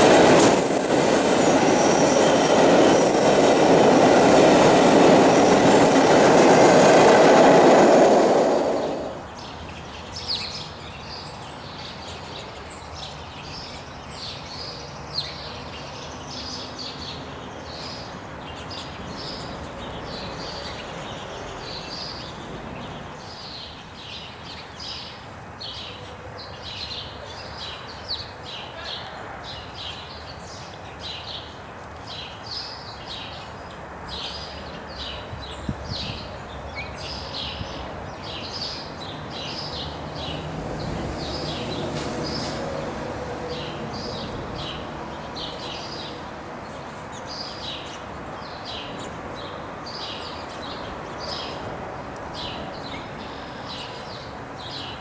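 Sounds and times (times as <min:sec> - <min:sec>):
wheels running on rails: 0:00.0 - 0:09.3
train cars passing: 0:00.0 - 0:10.1, 0:16.6 - 0:24.0, 0:33.3 - 0:55.0.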